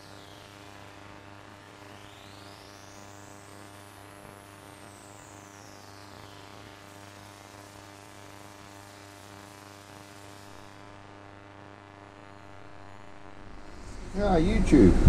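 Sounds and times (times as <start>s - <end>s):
electrical hum and buzz: 0.0s - 15.0s
high whine falling in pitch: 11.6s - 15.0s.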